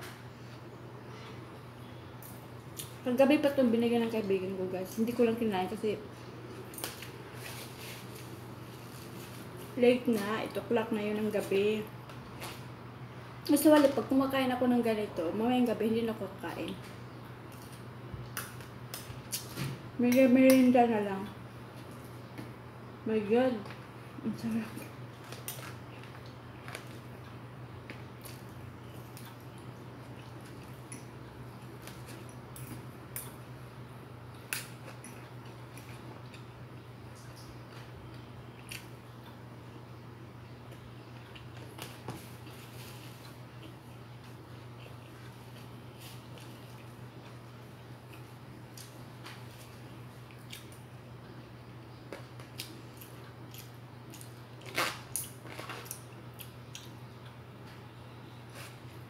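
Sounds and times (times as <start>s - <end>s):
steady low hum: 0.0s - 59.0s
chewing: 24.7s - 33.4s, 49.6s - 50.8s, 52.4s - 57.4s.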